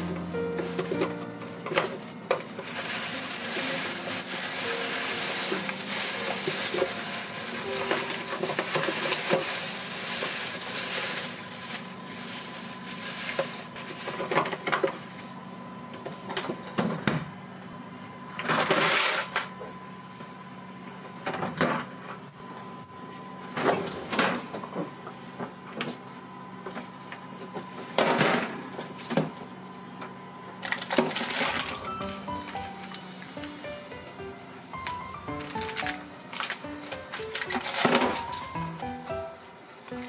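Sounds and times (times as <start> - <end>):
plastic bag crinkling: 0.6 - 14.4, 30.6 - 40.0.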